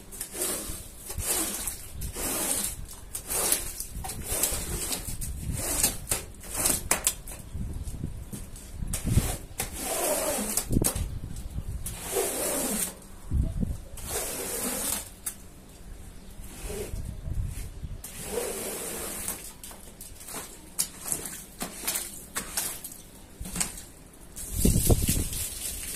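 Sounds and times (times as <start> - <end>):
squeegee scraping wet rug: 0.0 - 7.4, 8.6 - 13.1, 13.9 - 15.4, 16.4 - 25.9.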